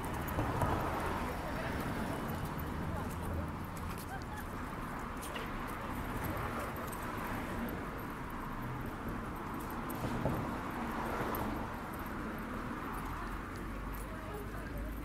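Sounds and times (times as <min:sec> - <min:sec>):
traffic noise: 0:00.0 - 0:15.0.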